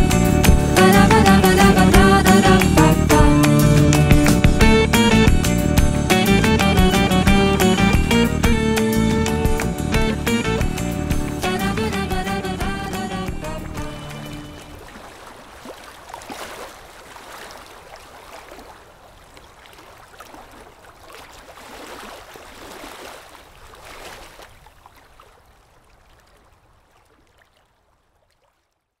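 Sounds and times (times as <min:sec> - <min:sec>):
rushing water: 0:00.0 - 0:28.6.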